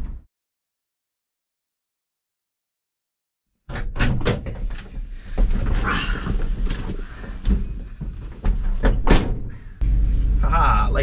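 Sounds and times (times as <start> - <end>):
vehicle cab rumble: 9.4 - 11.0.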